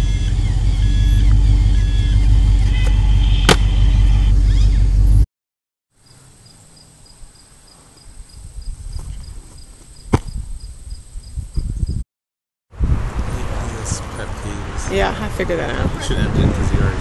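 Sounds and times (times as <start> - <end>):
loud low rumble: 0.0 - 5.2
insect chirping: 6.0 - 12.0
wind noise: 7.2 - 12.0, 12.7 - 17.0.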